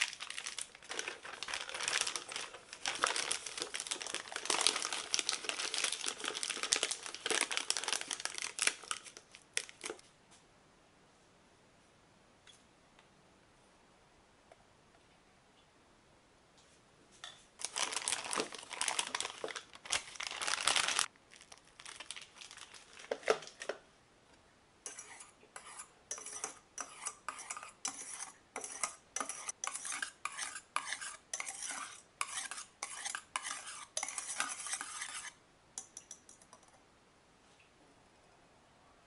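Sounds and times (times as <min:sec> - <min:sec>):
whisk scraping a saucepan: 0:24.8 - 0:35.4.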